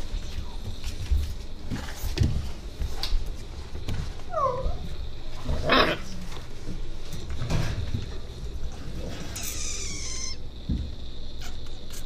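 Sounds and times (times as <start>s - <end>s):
puppy yelping: 9.4s - 10.4s.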